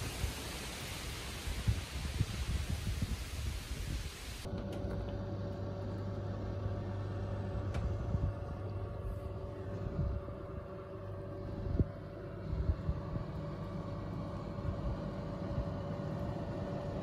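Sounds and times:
oven humming: 0:04.4 - 0:17.0.

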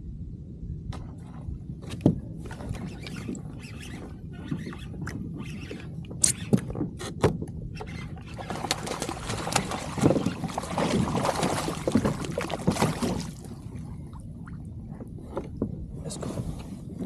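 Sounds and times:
fish splashing at water surface: 0:08.4 - 0:13.5.

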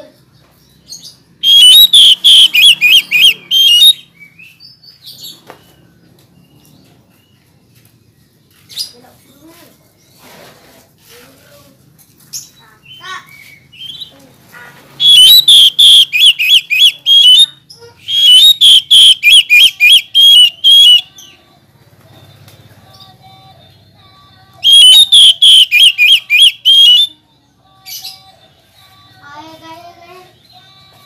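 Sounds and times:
bird singing whistled notes: 0:00.9 - 0:04.7, 0:15.0 - 0:17.5, 0:18.1 - 0:21.3, 0:24.6 - 0:27.2.

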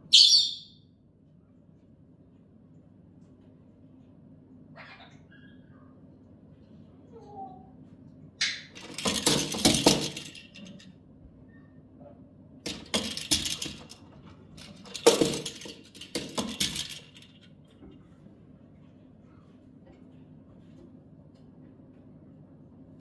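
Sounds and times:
plastic toy ball rattling: 0:08.8 - 0:10.9, 0:12.7 - 0:17.6.

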